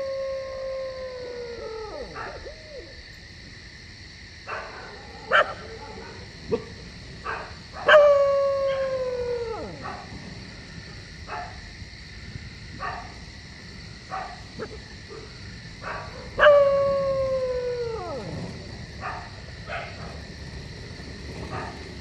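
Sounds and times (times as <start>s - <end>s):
dog howling: 0.0s - 3.0s, 7.8s - 10.2s, 15.9s - 20.0s.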